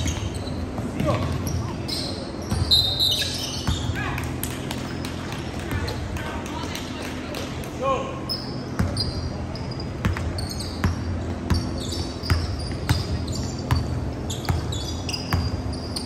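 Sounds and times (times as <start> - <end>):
sneakers squeaking on court: 0.0 - 4.0, 8.3 - 16.0.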